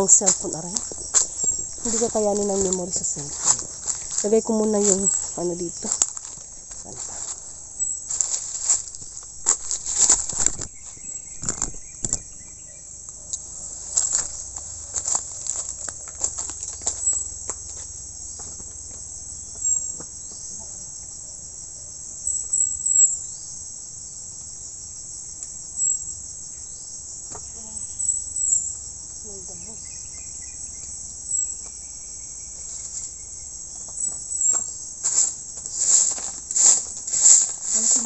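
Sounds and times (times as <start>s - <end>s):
insect chirps: 0.0s - 38.0s
insect chorus: 0.0s - 38.0s.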